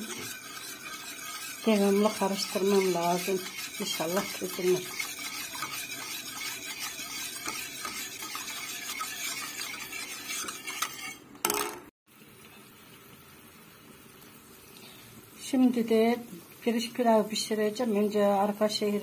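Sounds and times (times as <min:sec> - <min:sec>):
whisk swishing in metal pot: 0:00.0 - 0:11.2
faint steady hiss: 0:12.1 - 0:19.0.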